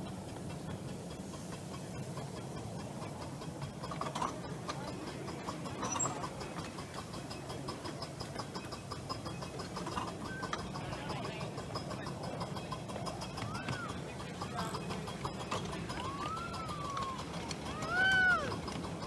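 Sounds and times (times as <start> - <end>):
train rumbling on track: 0.0 - 19.0
fast regular ticking: 0.1 - 19.0.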